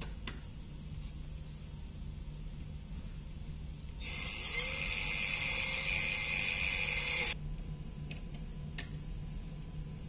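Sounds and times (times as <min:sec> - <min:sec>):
power drill boring through metal: 0:04.0 - 0:07.4.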